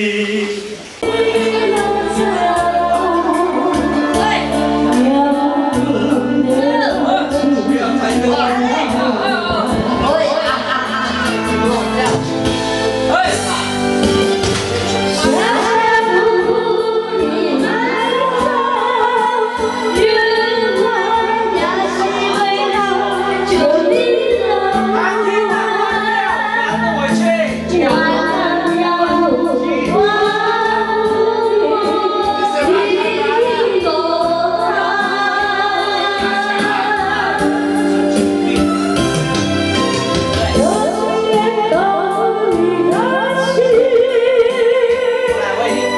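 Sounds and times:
backing track music: 0.0s - 45.9s
woman singing karaoke: 1.0s - 12.1s, 14.9s - 38.4s, 39.6s - 45.9s.

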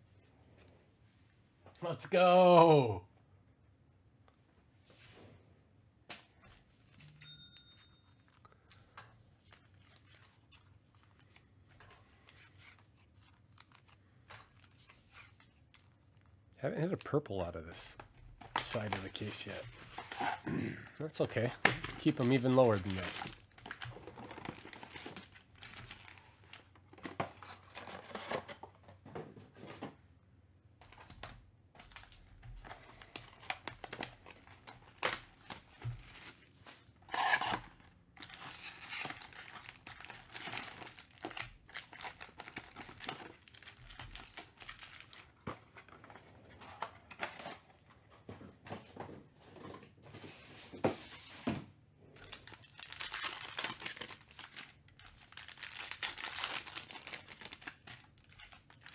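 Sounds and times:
foil packs crinkling: 16.8s - 20.4s, 21.3s - 26.8s, 31.8s - 46.2s, 52.2s - 58.9s.

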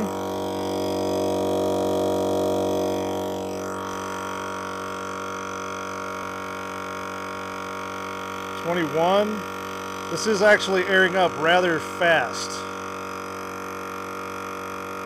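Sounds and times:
air compressor droning: 0.0s - 15.0s.

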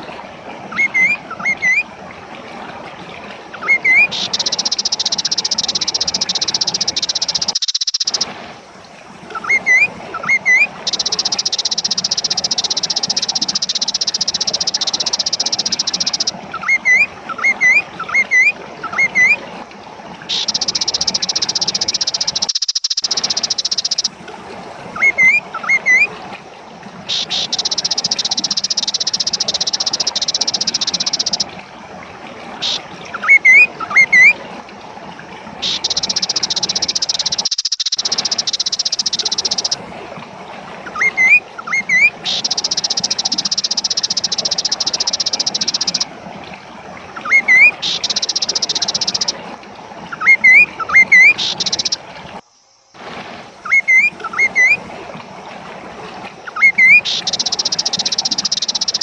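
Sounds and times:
bird whistling calls: 0.7s - 1.8s, 3.6s - 8.2s, 9.4s - 19.4s, 20.3s - 24.1s, 25.0s - 26.1s, 27.1s - 31.5s, 32.6s - 34.3s, 35.6s - 39.8s, 40.8s - 46.0s, 47.2s - 49.3s, 50.1s - 52.0s, 53.6s - 54.8s, 56.5s - 59.0s.

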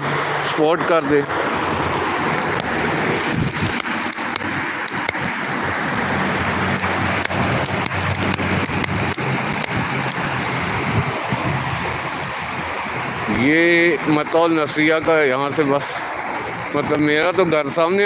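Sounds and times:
low hum: 0.0s - 14.1s
cars driving past: 0.0s - 18.0s.

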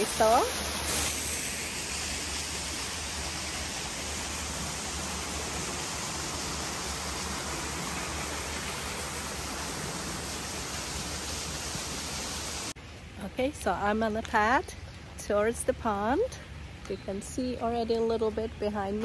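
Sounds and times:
water rushing over rocks: 0.0s - 12.7s.

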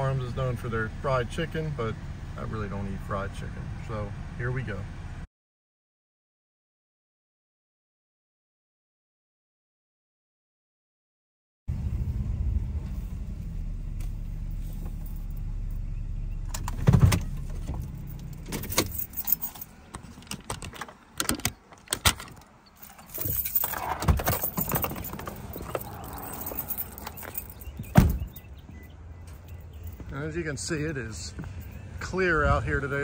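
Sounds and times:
car engine hum: 0.0s - 5.2s, 11.7s - 33.0s
keys jangling: 17.8s - 28.5s
thump: 27.9s - 28.3s.

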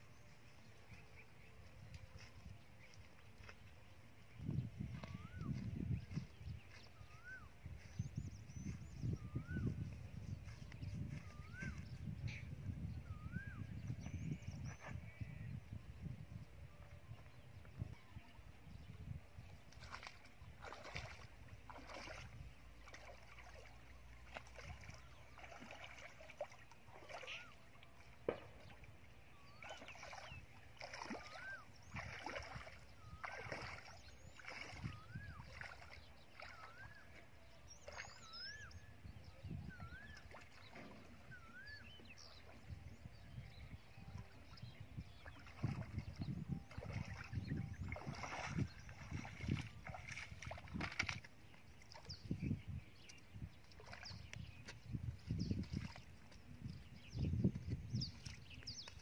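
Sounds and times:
splashing steps in muddy water: 19.6s - 37.2s, 45.2s - 52.4s, 53.0s - 56.6s.

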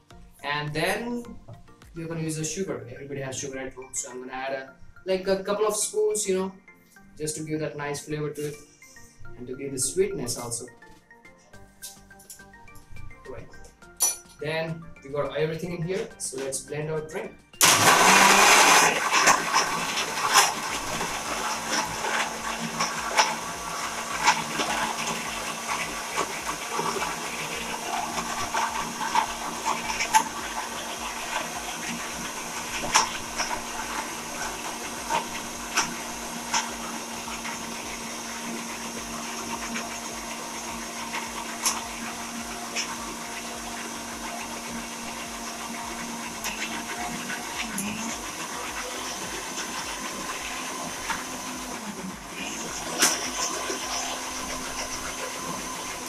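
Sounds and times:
blender crushing ice: 17.6s - 56.0s
blender motor hum: 17.6s - 56.0s.

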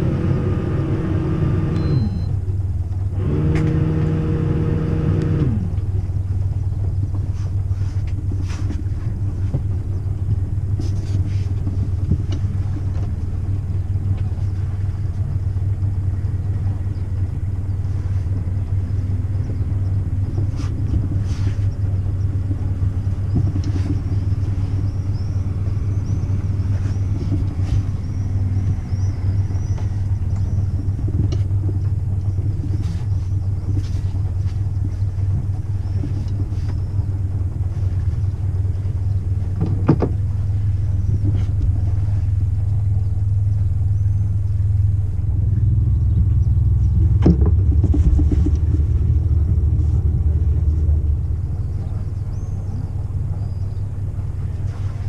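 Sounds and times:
boat engine rumbling: 0.0s - 55.0s.

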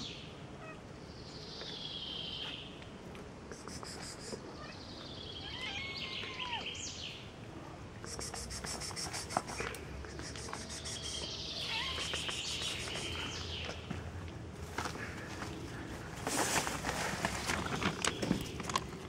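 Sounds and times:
high chirping: 8.1s - 13.8s
songbird trilling: 10.2s - 13.8s.

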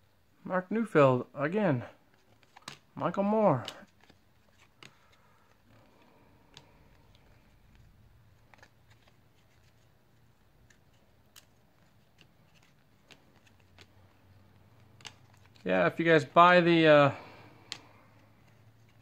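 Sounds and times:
cards flipping clicks: 2.1s - 2.9s, 3.6s - 15.7s, 17.2s - 19.0s.

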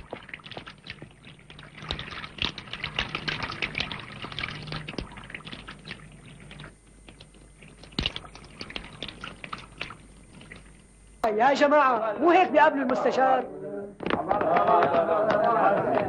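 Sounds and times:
tap water splashing: 0.0s - 11.2s.

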